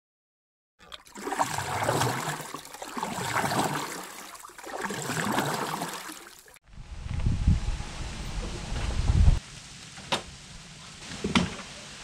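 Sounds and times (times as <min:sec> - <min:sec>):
rushing splashing water: 0:00.8 - 0:06.6.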